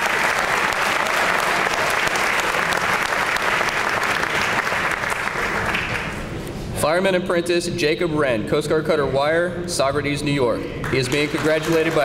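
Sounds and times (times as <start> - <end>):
audience applauding: 0.0 - 6.3, 10.8 - 12.0.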